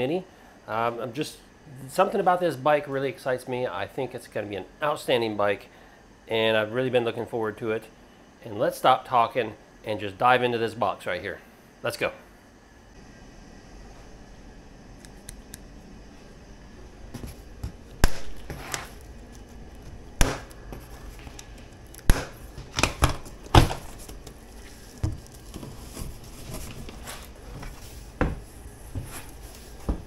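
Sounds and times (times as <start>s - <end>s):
cardboard rustling and scraping: 17.0s - 30.0s.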